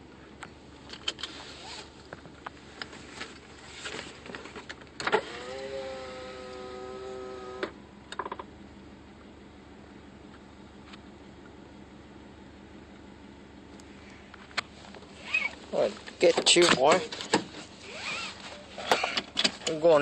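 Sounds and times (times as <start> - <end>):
power window motor whining: 5.0 - 7.8, 15.2 - 15.6, 17.8 - 19.4.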